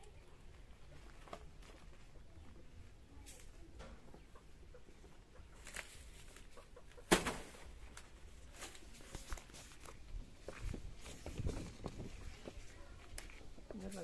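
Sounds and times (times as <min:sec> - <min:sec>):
leaves rustling: 0:05.4 - 0:14.0.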